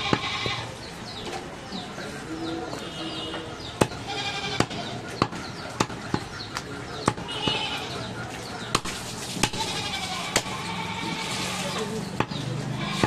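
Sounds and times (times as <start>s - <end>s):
goat bleating: 0.0s - 0.8s, 4.0s - 4.8s, 7.3s - 8.1s, 9.4s - 11.9s, 12.7s - 13.0s.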